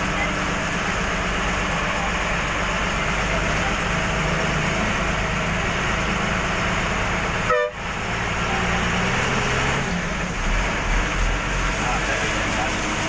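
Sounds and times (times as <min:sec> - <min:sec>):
bus engine and road noise: 0:00.0 - 0:13.0
vehicle horn toot: 0:07.4 - 0:07.9.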